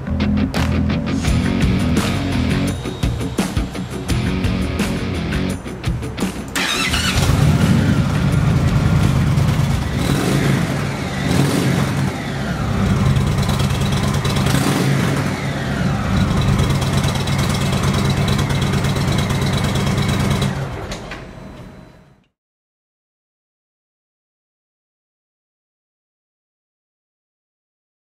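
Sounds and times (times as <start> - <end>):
motorcycle engine revving: 1.2 - 21.1.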